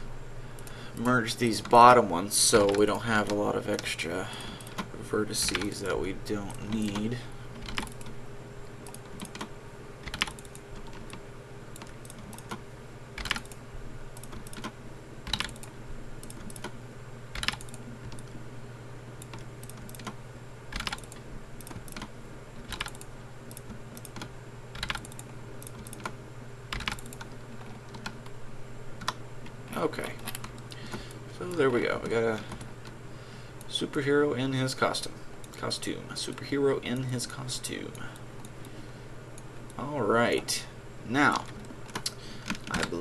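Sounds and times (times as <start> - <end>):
steady low hum: 0.0 - 43.0
keyboard and mouse clicks: 2.6 - 3.9, 4.6 - 5.8, 6.5 - 8.2, 8.8 - 12.6, 13.2 - 13.6, 14.2 - 16.8, 17.4 - 18.4, 19.2 - 28.3, 29.0 - 29.2, 41.4 - 43.0.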